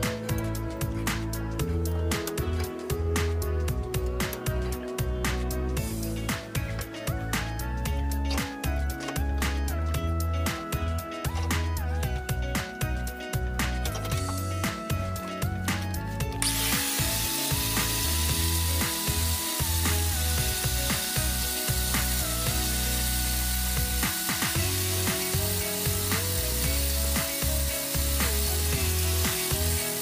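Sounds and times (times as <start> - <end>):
background music: 0.0 - 30.0
angle grinder grinding metal: 16.2 - 30.0.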